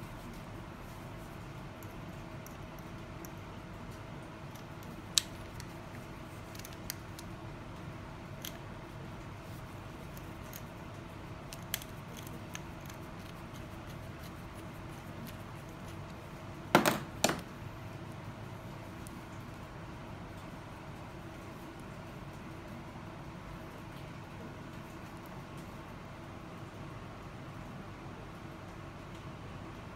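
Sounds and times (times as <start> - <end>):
faint steady hum: 0.0 - 29.9.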